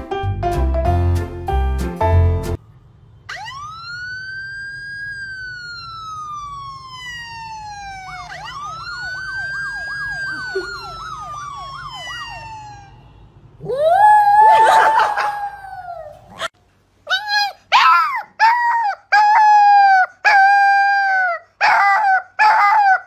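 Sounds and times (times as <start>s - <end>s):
police siren wailing: 3.2s - 16.2s
siren yelp warbling: 3.3s - 16.4s.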